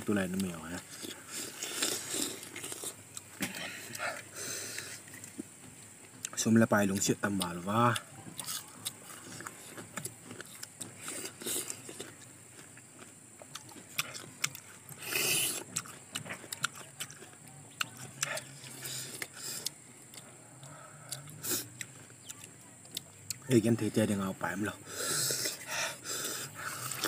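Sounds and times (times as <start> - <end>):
people chewing and crunching fruit: 0.0 - 27.0.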